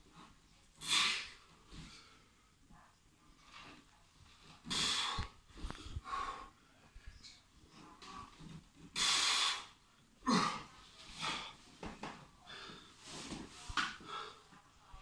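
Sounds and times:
man breathing heavily: 4.6 - 7.0, 12.4 - 14.6.

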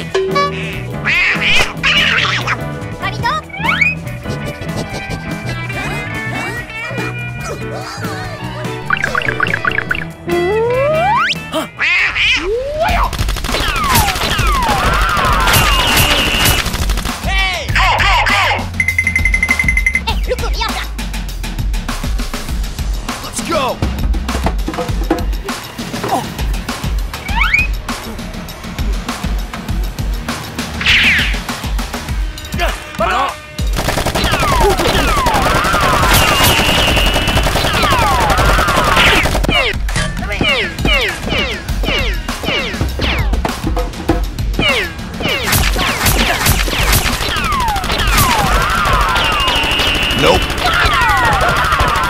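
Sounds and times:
high warbling tone: 8.8 - 11.4
rapid automatic gunfire: 13.1 - 17.3, 33.7 - 39.6, 45.5 - 52.0
rapid machine gun fire: 13.1 - 17.3, 33.7 - 39.6, 45.4 - 52.0
falling whistles: 49.2 - 50.4.

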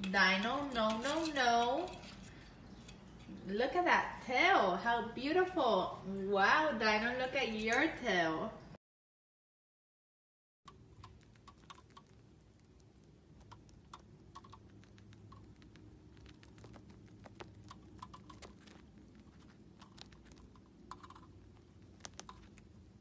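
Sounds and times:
birds pecking with beaks: 10.7 - 23.0
low steady hum: 10.7 - 23.0.

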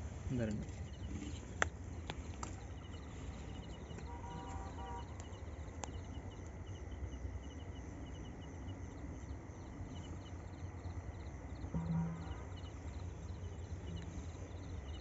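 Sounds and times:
faint hum: 0.0 - 15.0
insects chirping in pulses: 0.3 - 15.0
low rumble: 11.6 - 15.0
thin high tone: 11.7 - 12.9.

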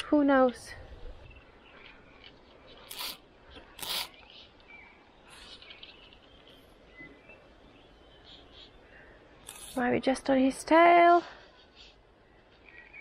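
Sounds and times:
faint bird chirps: 1.0 - 9.8, 11.5 - 13.0.

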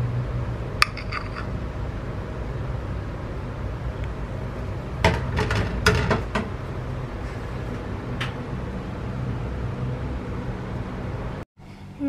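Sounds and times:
steady low hum: 0.0 - 12.0
spoon clinking on plate: 0.8 - 1.5.

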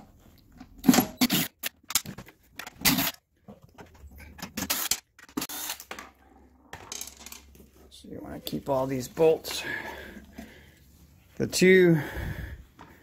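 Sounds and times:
cordless impact driver: 0.9 - 1.8, 4.6 - 5.9.

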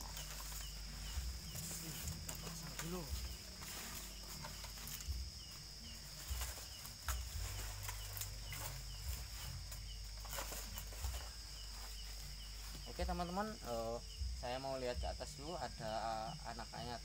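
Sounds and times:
night insect chorus: 0.0 - 17.0
short insect chirp: 0.0 - 17.0
bamboo ladder knocks and thumps: 6.2 - 12.0.

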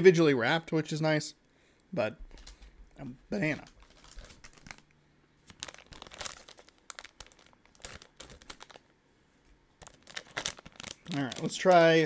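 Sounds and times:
plastic packaging crinkling: 3.4 - 8.9, 9.8 - 12.0.

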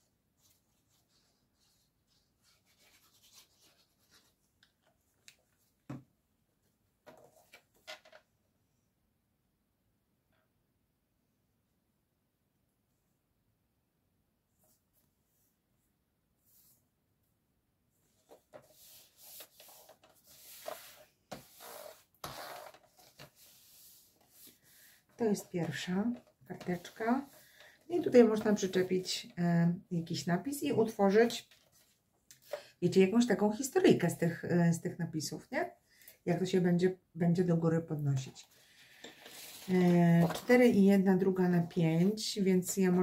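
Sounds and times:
paper rustling and scraping: 0.4 - 4.8, 18.1 - 28.9, 38.7 - 40.8.

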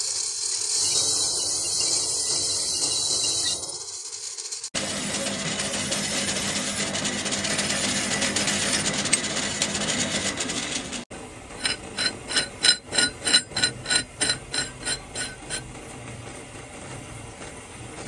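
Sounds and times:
machinery clattering: 11.6 - 18.0.

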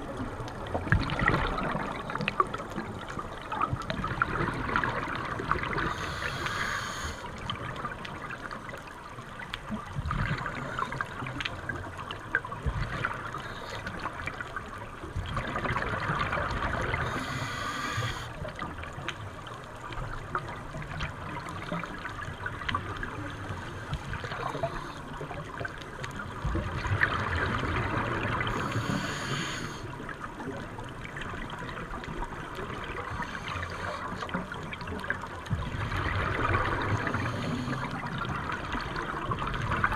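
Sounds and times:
underwater bubbling: 0.0 - 39.9
regulator breathing hiss: 5.8 - 7.3, 17.0 - 18.4, 28.5 - 29.9.

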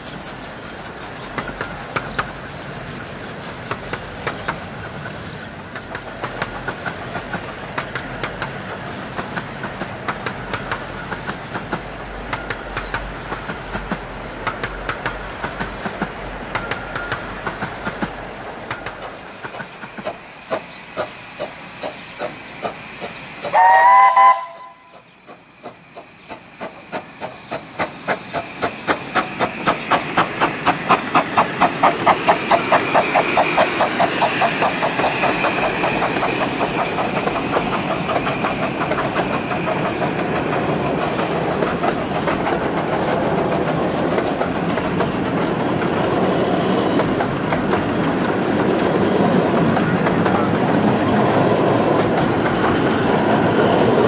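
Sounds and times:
steam locomotive beats: 0.0 - 54.0
steam locomotive chime whistle: 23.4 - 25.1.

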